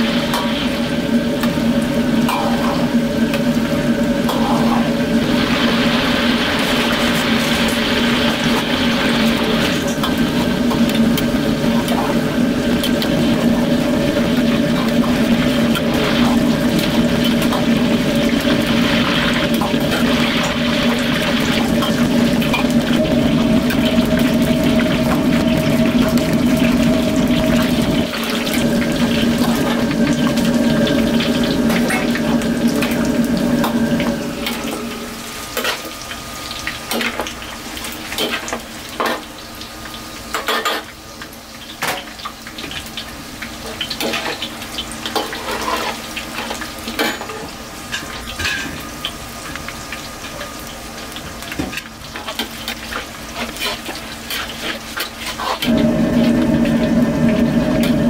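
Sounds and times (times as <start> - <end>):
loud steady hum: 0.0 - 36.0, 55.6 - 58.0
oil frying with pops: 0.0 - 58.0.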